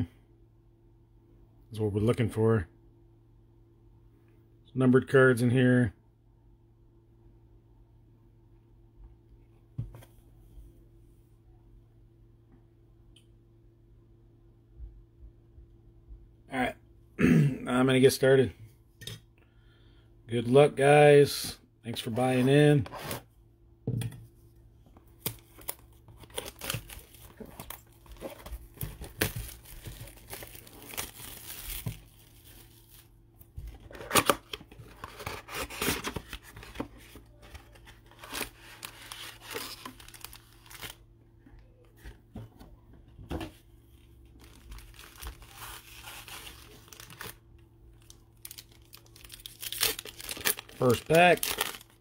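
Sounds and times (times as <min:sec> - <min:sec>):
faint steady hum: 0:00.0 - 0:52.0
shrink wrap tearing and crinkling: 0:25.2 - 0:33.2, 0:33.8 - 0:41.0, 0:44.4 - 0:52.0
foil packs rustling and tapping: 0:25.3 - 0:33.0, 0:44.4 - 0:47.3, 0:48.4 - 0:51.9.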